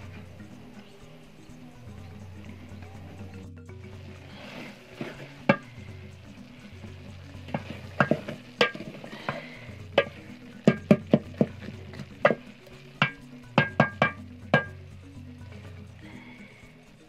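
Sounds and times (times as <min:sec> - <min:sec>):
quiet background music: 0:00.0 - 0:17.0
wooden spoon stirring beans: 0:00.0 - 0:17.0
spoon knocking against metal pot: 0:05.4 - 0:05.7, 0:07.5 - 0:14.8.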